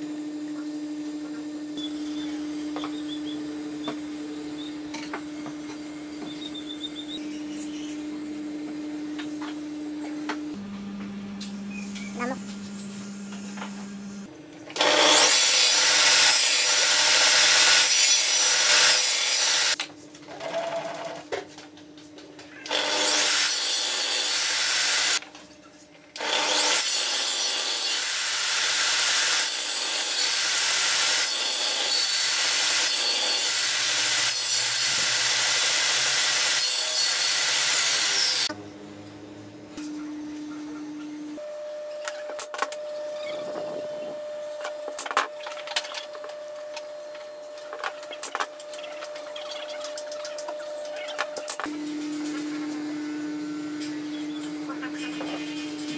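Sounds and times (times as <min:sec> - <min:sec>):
table saw cutting wood: 0:12.7 - 0:19.8, 0:22.7 - 0:25.2, 0:26.2 - 0:38.6.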